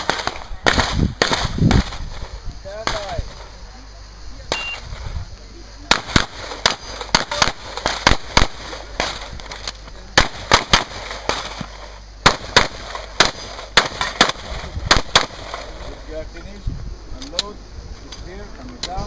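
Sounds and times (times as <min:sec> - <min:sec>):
pistol shots: 0:05.9 - 0:09.6, 0:10.2 - 0:15.7.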